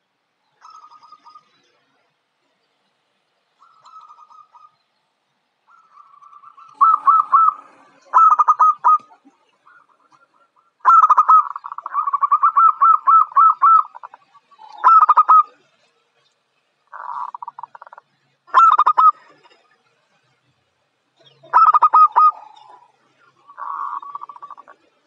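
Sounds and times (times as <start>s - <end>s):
dove cooing song: 0.6s - 1.8s, 3.6s - 4.8s, 5.7s - 15.8s, 16.9s - 19.7s, 21.2s - 25.0s.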